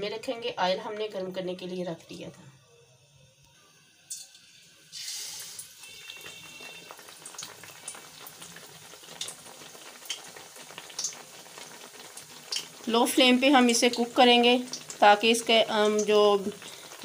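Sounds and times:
bread frying in hot oil: 3.6 - 17.0.

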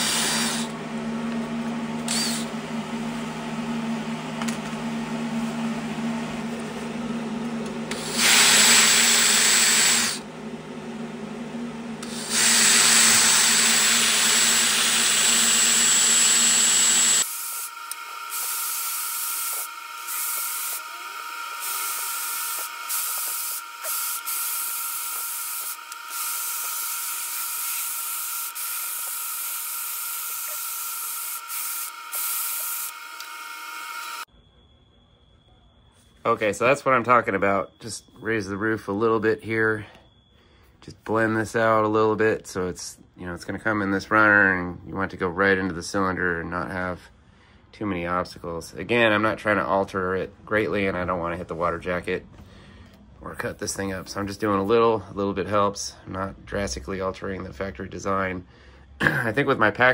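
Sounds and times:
die grinder grinding metal: 0.0 - 0.8, 2.0 - 2.5, 7.9 - 10.2, 12.0 - 34.3.

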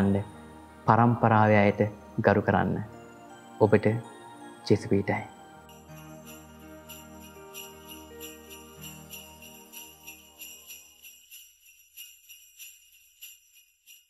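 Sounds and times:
jingle bells shaken: 2.9 - 14.0.

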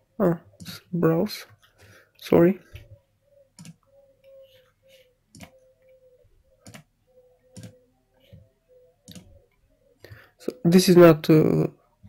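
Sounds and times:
computer mouse clicking: 3.5 - 4.4, 5.3 - 6.0, 6.6 - 9.3.

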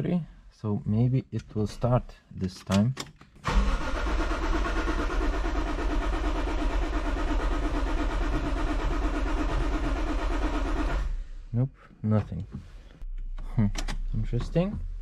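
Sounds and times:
starter motor cranking: 3.4 - 11.2.

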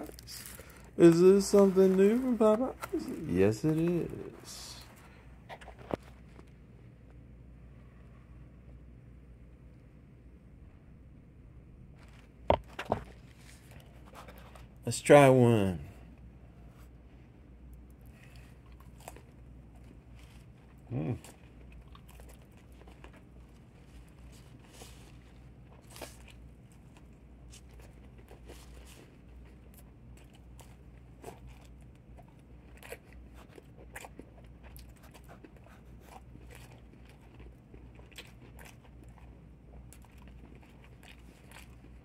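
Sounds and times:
person chewing crispy food: 0.0 - 6.6, 17.6 - 42.0
steady low hum: 0.0 - 42.0.

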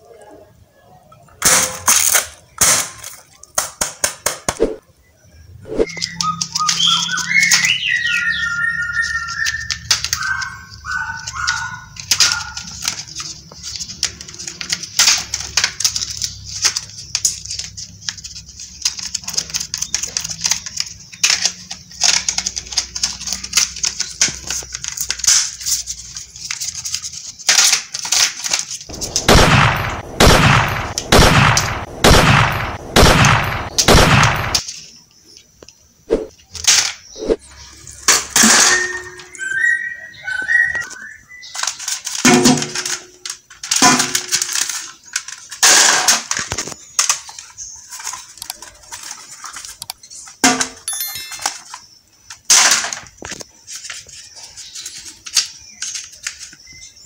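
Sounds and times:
toy gunshot blasts: 28.9 - 34.6
electronic beeping tune: 50.9 - 51.6.

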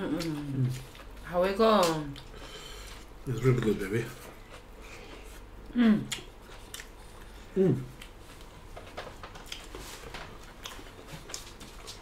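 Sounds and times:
chewing clicks and smacks: 6.1 - 7.0
person humming mm: 7.5 - 8.0.

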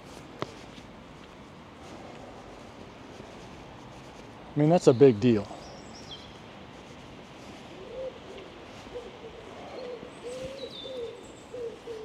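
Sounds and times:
low pitched bird calls: 7.8 - 12.0
faint high bird chirps: 9.7 - 12.0.

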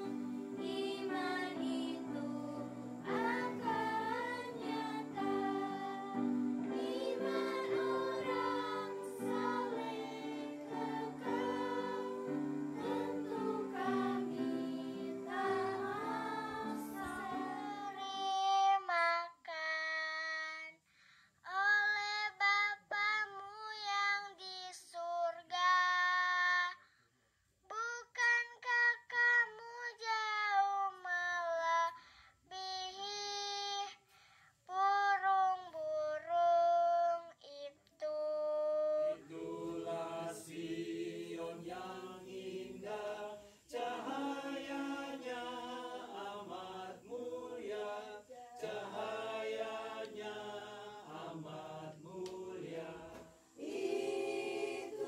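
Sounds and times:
group of voices singing: 0.0 - 18.6, 39.0 - 55.0
girl singing solo: 0.0 - 20.4.

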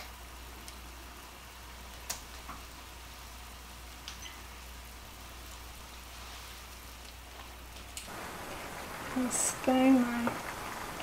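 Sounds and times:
sauce sizzling in a skillet: 8.1 - 11.0.

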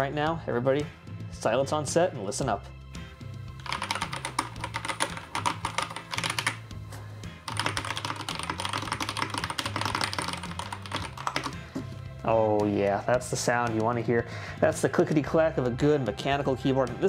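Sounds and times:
fast mechanical keyboard typing: 3.6 - 6.6, 7.5 - 11.6.

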